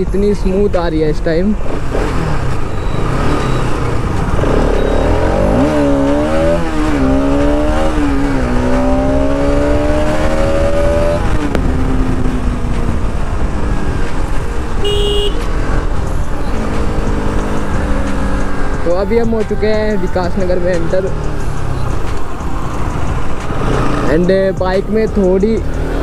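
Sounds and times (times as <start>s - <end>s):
wind and road noise: 0.0s - 26.0s
motorcycle engine accelerating: 1.5s - 26.0s
short beep: 2.7s - 3.9s, 4.5s - 5.6s.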